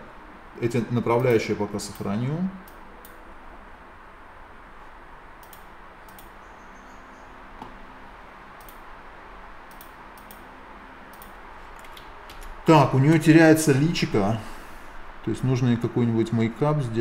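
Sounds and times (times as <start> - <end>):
low room hiss and hum: 0.0 - 17.0.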